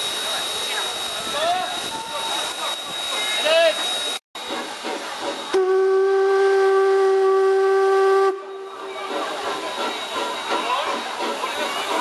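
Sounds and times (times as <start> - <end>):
steam hissing: 0.0 - 12.0
steam whistle blast: 5.3 - 11.0.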